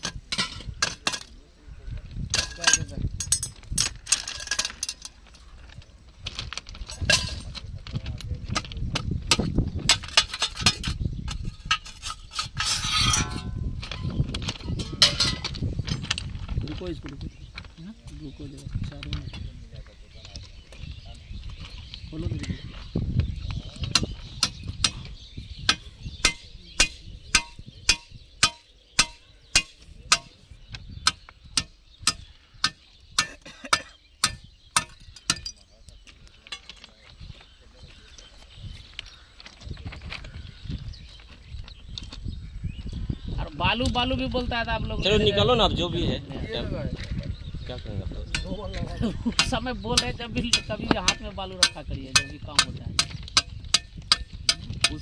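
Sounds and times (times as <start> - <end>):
sharp metal taps: 23.9 - 30.4, 31.0 - 35.6, 49.3 - 55.0.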